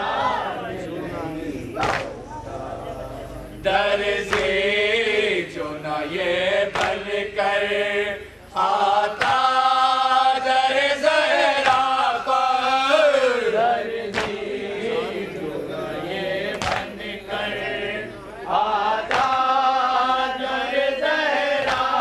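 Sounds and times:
men chanting a lament in unison: 0.0 - 22.0
chest-beating slaps: 1.8 - 2.2, 4.3 - 4.6, 6.7 - 7.0, 11.6 - 12.0, 14.1 - 14.4, 16.5 - 17.0, 19.0 - 19.5, 21.6 - 22.0.

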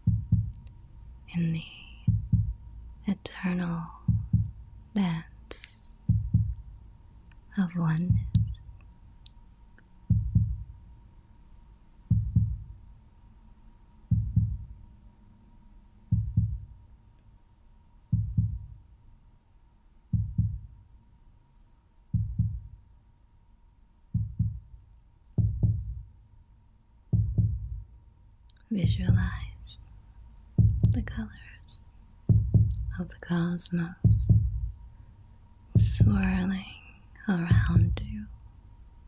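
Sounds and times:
heartbeat double thump: 0.0 - 0.6, 2.0 - 2.6, 4.0 - 4.7, 6.0 - 6.8, 7.9 - 8.7, 10.1 - 10.8, 12.1 - 12.8, 14.1 - 14.8, 16.1 - 16.7, 18.1 - 18.8, 20.1 - 20.8, 22.1 - 22.7, 24.2 - 24.8, 25.4 - 26.1, 27.1 - 27.9, 28.8 - 29.6, 30.6 - 31.2, 32.3 - 33.0, 34.0 - 34.8, 35.8 - 36.5, 37.4 - 38.2.

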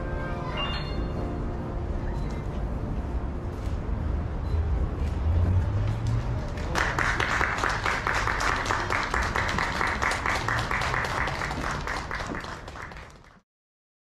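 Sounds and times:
crowd applauding: 5.9 - 13.4.

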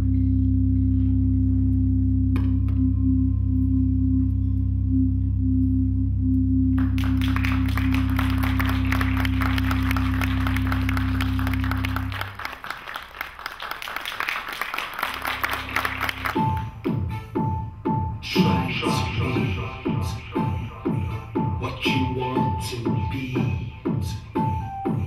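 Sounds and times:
electronic drone: 0.0 - 12.4
audience applause: 6.8 - 16.6.

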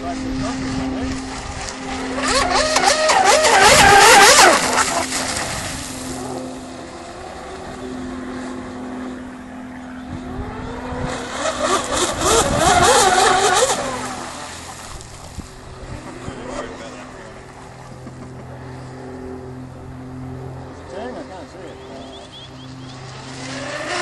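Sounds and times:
electric boat motors whining: 0.0 - 24.0.

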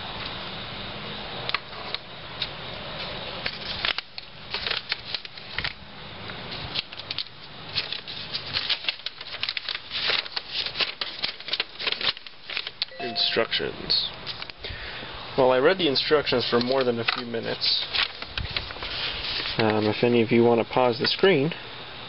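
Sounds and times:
paper sheets rustling: 3.4 - 5.8, 6.5 - 13.2, 16.4 - 20.0
small clicks and rustles: 6.5 - 12.9.

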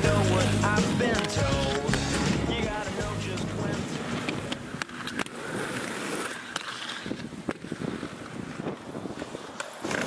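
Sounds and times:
skateboard clacks: 0.0 - 10.0
skateboard wheels rolling on pavement: 0.0 - 10.0
wind buffeting microphone: 6.9 - 10.0.

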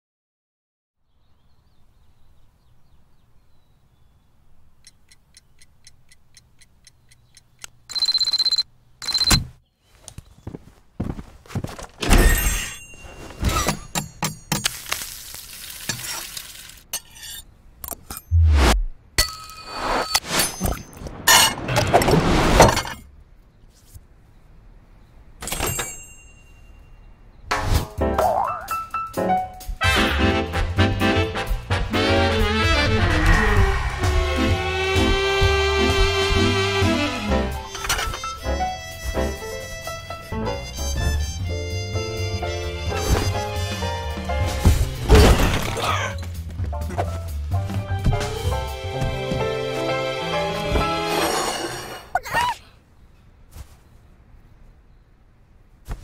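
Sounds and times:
clock ticking: 4.8 - 9.3
clink with short ring: 25.5 - 27.0
music: 27.8 - 45.2, 46.0 - 51.2
cartoon crash and breaking: 44.6 - 46.2.

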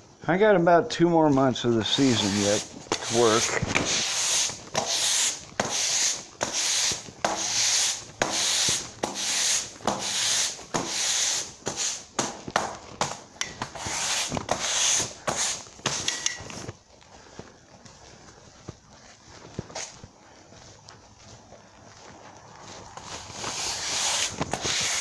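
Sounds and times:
broom sweeping concrete floor: 1.6 - 16.7, 23.0 - 25.0.

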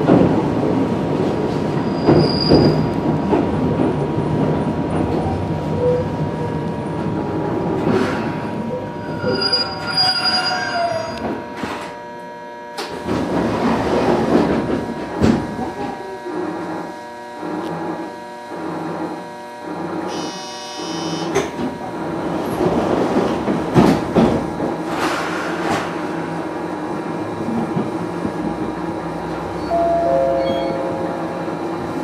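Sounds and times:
electric train rumbling on rails: 0.0 - 32.0
train wheels squealing: 1.8 - 2.8, 9.0 - 11.2.

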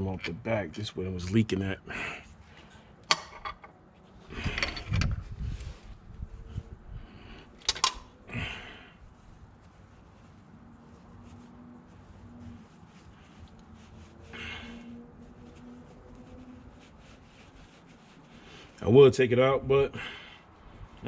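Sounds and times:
rag rubbing rustle: 8.1 - 19.0.

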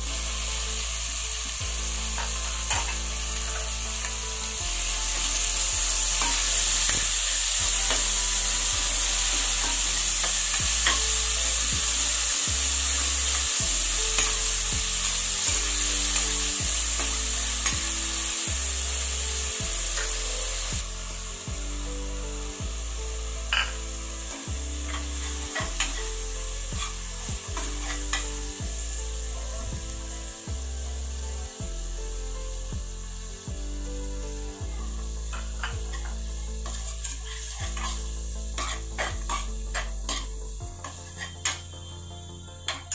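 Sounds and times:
meat and onions sizzling in oil: 0.0 - 42.9
metal spoon scraping a pan: 0.4 - 21.3, 23.4 - 29.3, 35.2 - 41.7, 42.7 - 42.9.

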